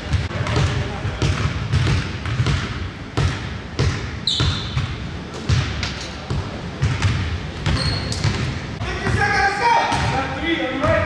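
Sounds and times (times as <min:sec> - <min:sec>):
basketball bouncing on wooden floor: 0:00.1 - 0:08.6
high squeak: 0:07.8 - 0:08.2.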